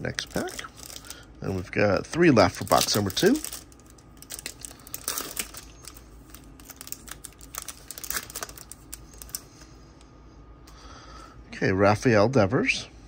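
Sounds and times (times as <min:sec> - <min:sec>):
foil wrapper crinkling: 0:00.0 - 0:09.7.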